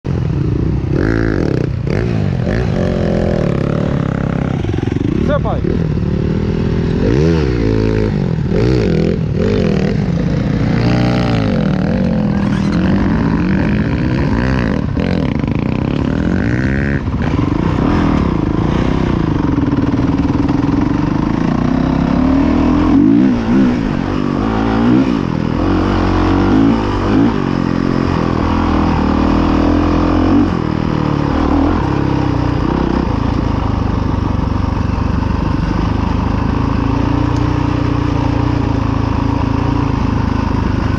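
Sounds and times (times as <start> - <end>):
dirt bike engine revving: 0.3 - 40.9.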